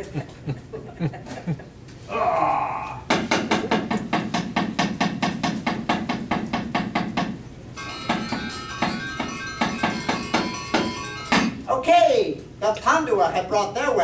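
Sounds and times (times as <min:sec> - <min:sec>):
wooden knocker rapping on wood: 0:03.1 - 0:07.4
metallophone gamelan music: 0:07.8 - 0:11.7.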